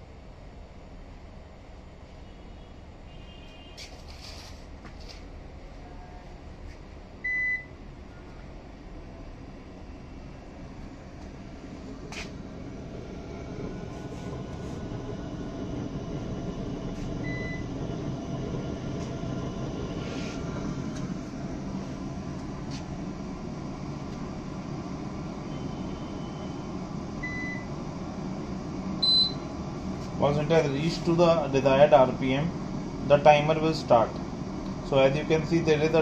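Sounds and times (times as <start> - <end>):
centrifuge motor humming: 10.2 - 36.0
short high beep: 29.0 - 29.4.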